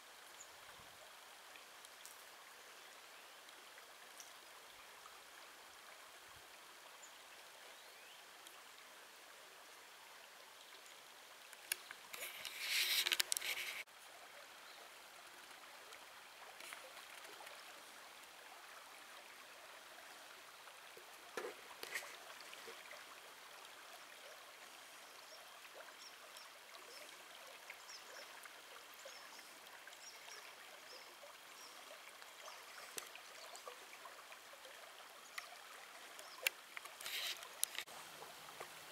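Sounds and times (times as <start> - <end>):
river running over stones: 0.0 - 38.9
faint clicks: 11.4 - 13.9, 32.8 - 33.2, 35.3 - 35.5, 36.1 - 37.9.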